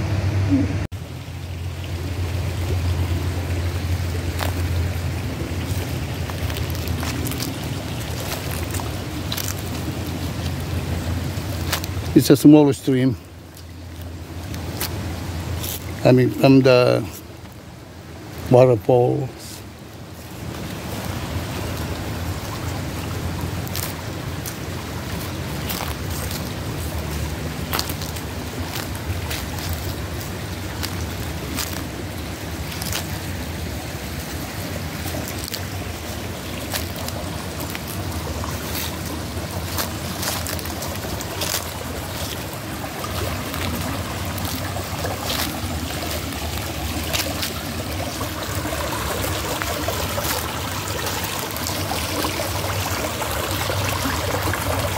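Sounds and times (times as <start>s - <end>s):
stream trickling over rocks: 0.0s - 54.9s.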